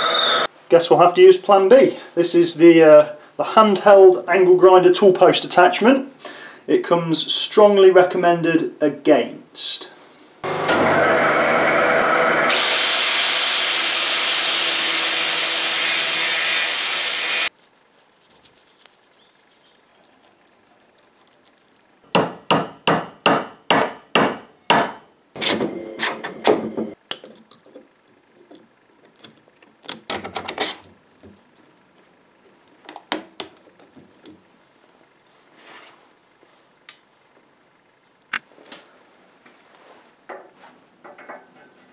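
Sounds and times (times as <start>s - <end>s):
angle grinder grinding steel: 0.0s - 0.5s, 10.4s - 17.5s.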